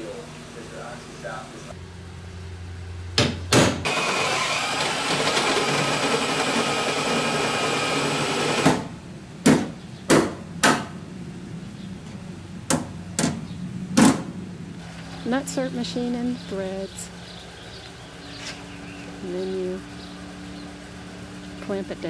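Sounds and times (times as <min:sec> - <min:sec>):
power drill running: 0:03.8 - 0:08.7
hammer striking center punch: 0:08.6 - 0:11.0.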